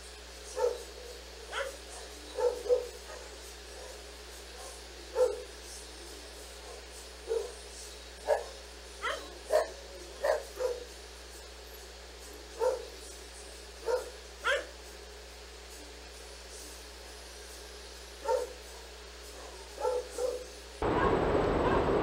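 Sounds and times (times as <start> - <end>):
dog barking and yelping: 0.6 - 4.0, 8.3 - 10.9, 13.9 - 14.7, 18.2 - 18.6, 19.4 - 22.0.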